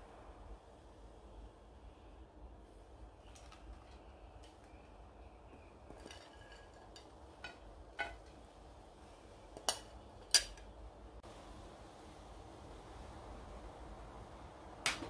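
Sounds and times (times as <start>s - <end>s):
metal spoon clinking dishes: 5.9s - 8.3s.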